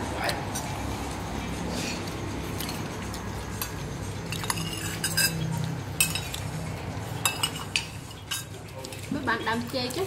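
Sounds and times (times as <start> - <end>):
spoons clinking on ceramic plates: 3.5 - 6.6, 7.2 - 9.2.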